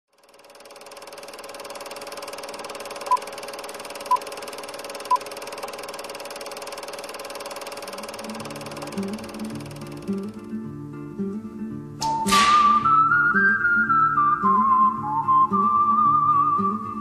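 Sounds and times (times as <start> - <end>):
film projector whirring: 0.1 - 10.5
plucked guitar music: 8.2 - 17.0.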